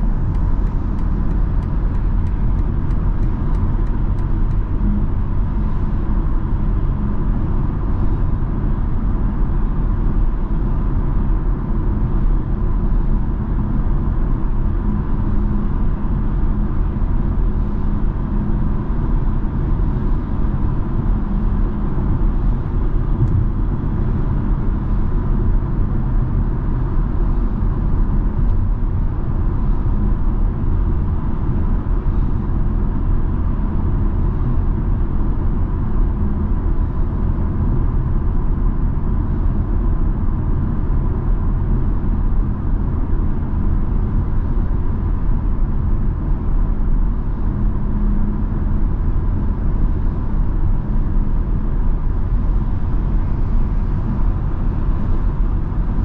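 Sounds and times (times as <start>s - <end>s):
car engine hum: 0.0s - 56.0s
tyre and road noise: 23.0s - 24.2s.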